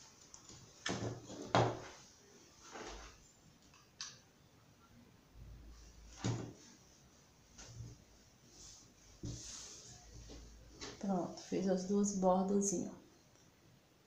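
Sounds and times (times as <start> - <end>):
fabric rustling: 0.0 - 3.3, 5.7 - 11.6.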